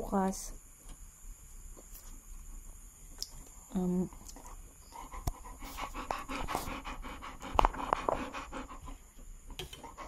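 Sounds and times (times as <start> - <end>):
dogs panting: 4.4 - 9.2.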